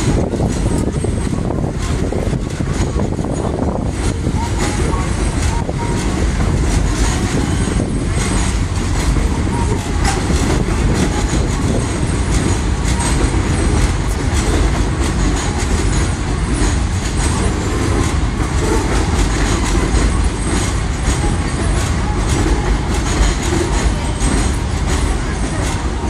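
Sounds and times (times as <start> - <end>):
elevated train rumbling past: 0.0 - 26.0
wheels clacking over rail joints: 0.0 - 26.0.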